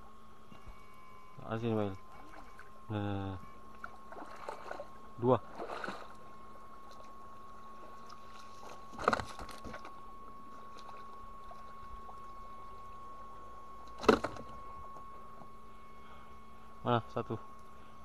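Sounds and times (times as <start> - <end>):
muddy water splashing: 3.7 - 9.9.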